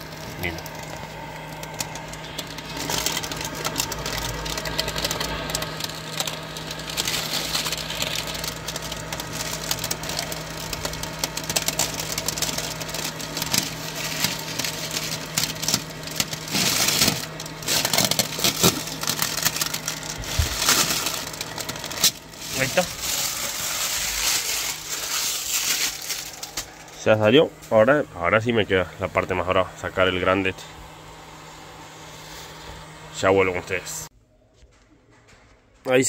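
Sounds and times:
plastic film crinkling: 0.0 - 27.0
steady mechanical hum: 0.0 - 36.0.

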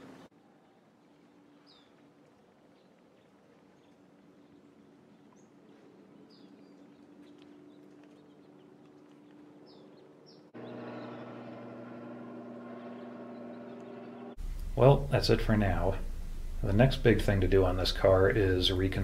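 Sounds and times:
birds chirping faintly: 0.0 - 19.0
low steady hum: 0.0 - 19.0
loud mechanical hum: 10.6 - 15.4.

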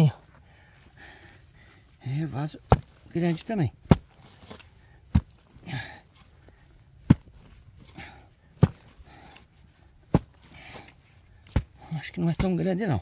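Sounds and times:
shovel chopping into hard earth: 2.7 - 5.4, 7.0 - 7.4, 8.6 - 8.9, 10.1 - 10.5, 11.4 - 12.6
soil scraping and falling: 2.7 - 13.0.

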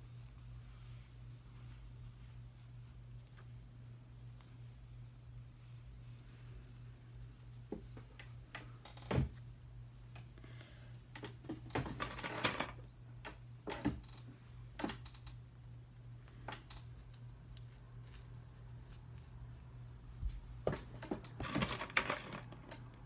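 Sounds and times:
steady low hum: 0.0 - 12.1.

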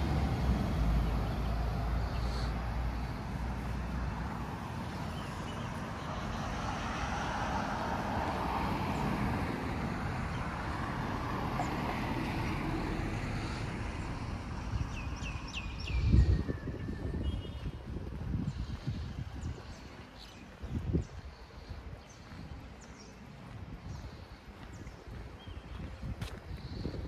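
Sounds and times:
vehicle tyre hiss: 0.0 - 14.7
street traffic noise: 0.0 - 27.0.

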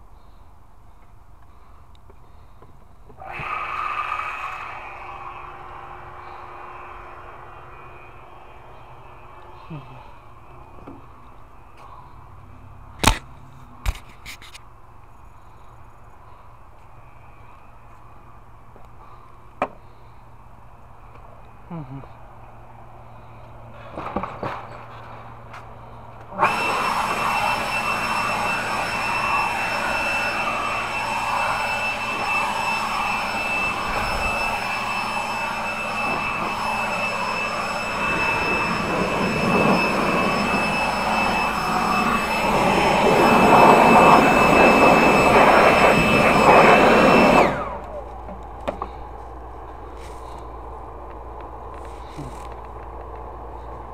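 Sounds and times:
electric blower motor whining: 3.1 - 11.2, 26.2 - 49.2.

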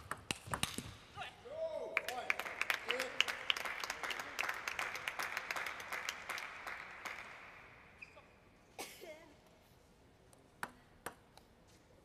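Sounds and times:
spectators clapping: 2.0 - 7.7.

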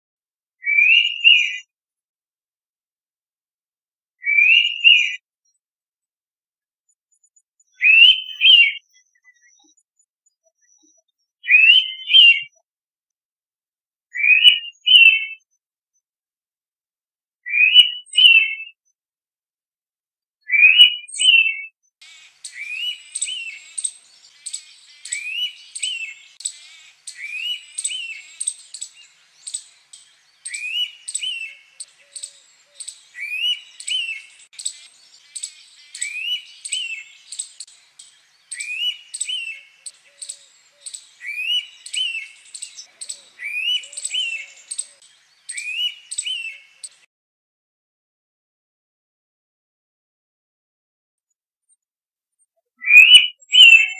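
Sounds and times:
bird double-noted whistle: 0.6 - 1.7, 7.7 - 9.8, 10.4 - 12.6, 14.2 - 15.4, 22.3 - 29.7, 30.3 - 37.7, 38.4 - 47.0, 52.8 - 53.9
faint rapid high chirping: 22.1 - 47.0.

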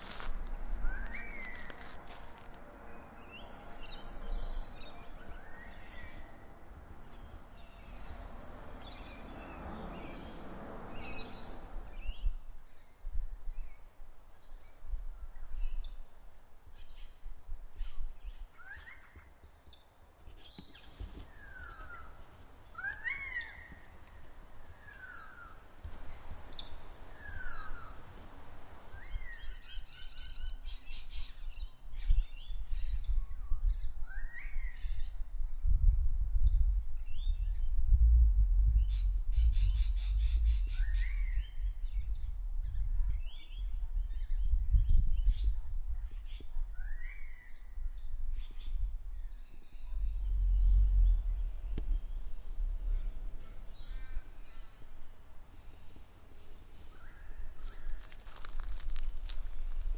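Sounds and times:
wind rumble: 0.0 - 15.7, 31.4 - 56.4, 57.4 - 59.9
birds whistling and chirping: 38.8 - 42.4.

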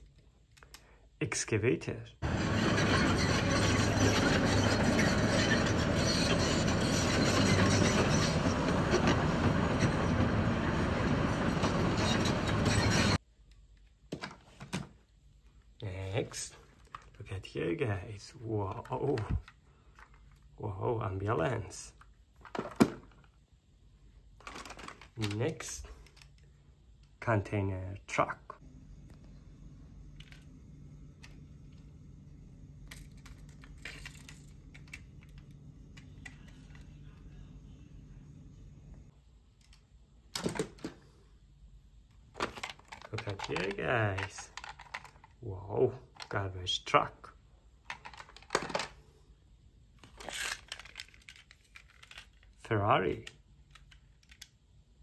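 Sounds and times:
excavator diesel engine running: 2.2 - 13.2
rattling and scraping: 2.2 - 13.2
toy cars clicking and tapping: 42.4 - 45.4, 53.2 - 54.6.

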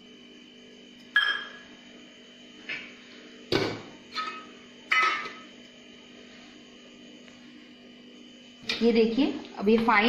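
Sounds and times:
metal bowls clanking: 4.1 - 5.4.

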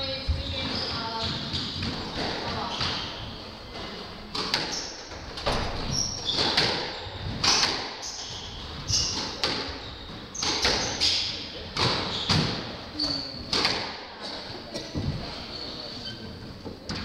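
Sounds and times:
squash ball cracks: 6.3 - 8.0, 13.5 - 14.1.

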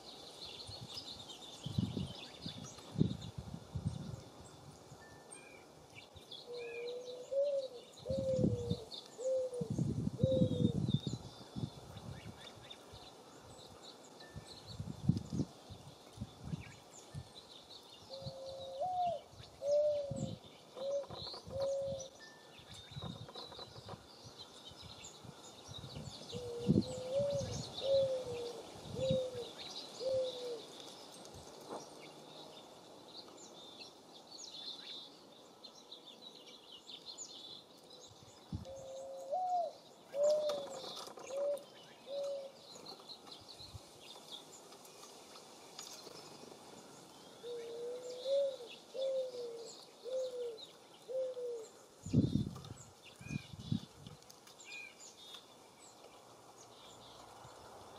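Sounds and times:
small songbirds chirping: 0.0 - 57.9
dove cooing: 6.5 - 10.8, 18.2 - 22.2, 26.3 - 30.7, 38.7 - 42.6, 47.4 - 51.8.

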